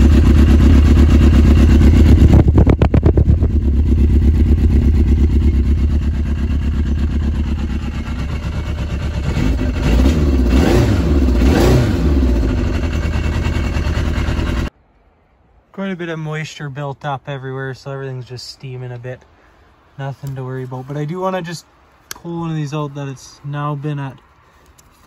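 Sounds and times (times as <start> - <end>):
snowmobile engine idling and revving: 0.0 - 14.7.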